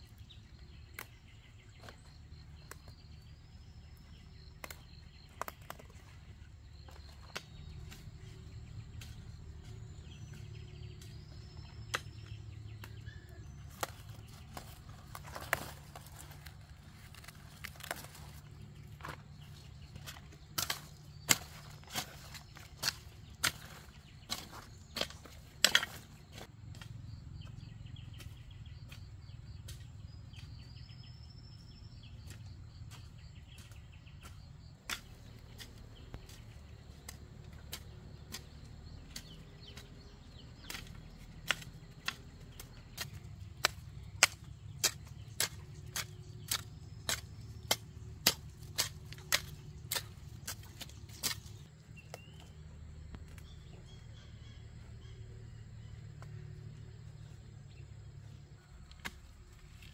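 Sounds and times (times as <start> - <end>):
hoe striking soil: 6.7 - 54.0.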